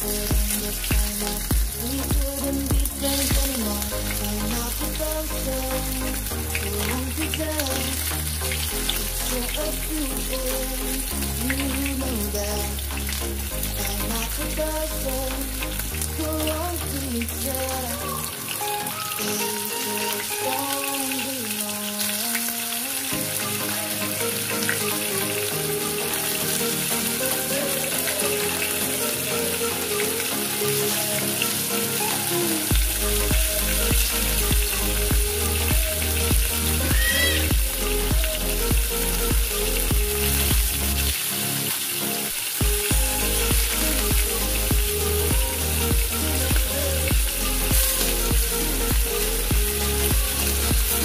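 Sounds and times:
background music with bass beat: 0.0 - 21.0, 23.0 - 51.0
hot oil sizzling: 0.0 - 51.0.

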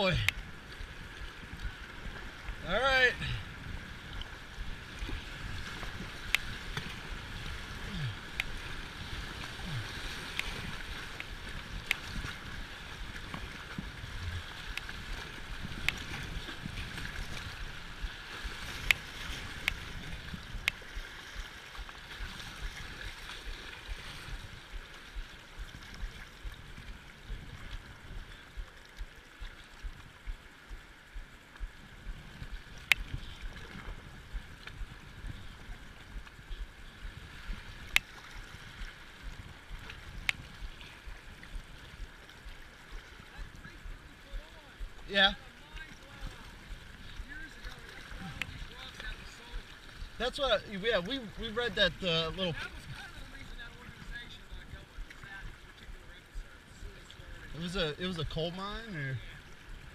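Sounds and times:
river water rushing and gurgling: 0.0 - 59.9.

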